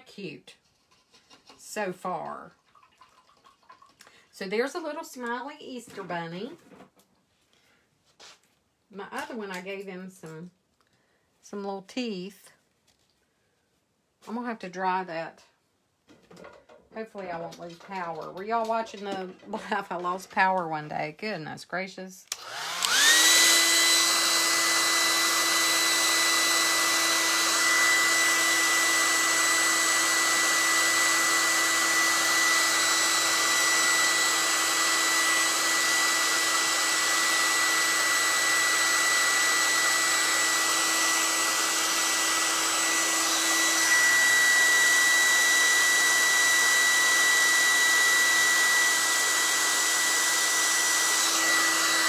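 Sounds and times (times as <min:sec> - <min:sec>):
hair dryer running: 0:22.3 - 0:52.0.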